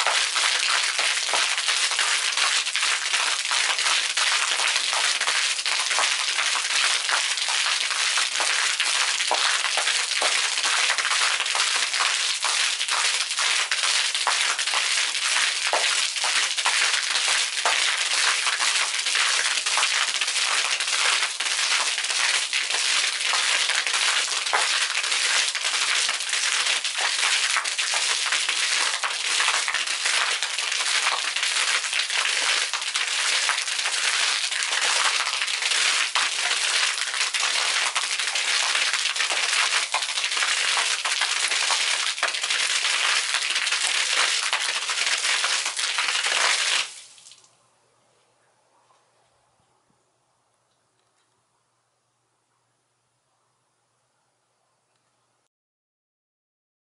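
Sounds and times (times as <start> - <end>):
fountain water splashing on concrete: 0.0 - 47.5.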